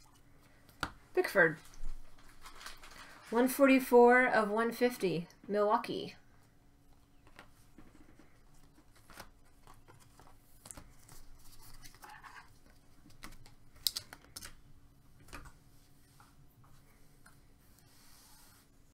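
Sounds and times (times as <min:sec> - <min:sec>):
wrapper crinkling: 0:01.7 - 0:03.3.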